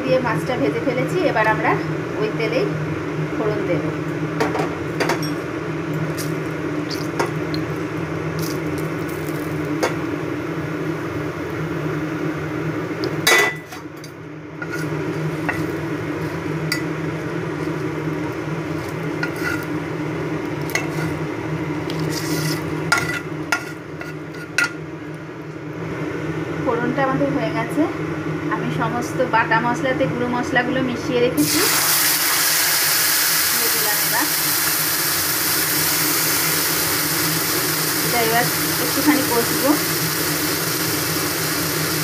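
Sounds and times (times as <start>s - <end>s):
steady low hum: 0.0s - 31.4s
spices sizzling in hot oil: 4.8s - 24.8s, 31.4s - 42.0s.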